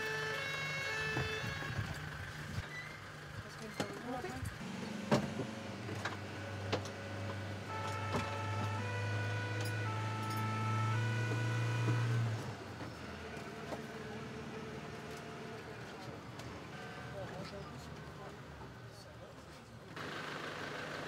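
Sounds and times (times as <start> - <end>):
fire engine engine drone: 0.0 - 21.0
high-pitched stepping siren tone: 7.7 - 12.3.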